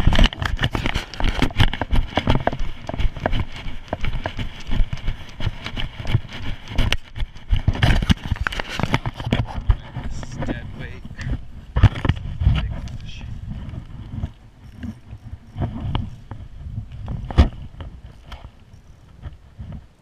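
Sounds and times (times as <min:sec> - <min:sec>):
footsteps running through snow: 0:00.0 - 0:11.0.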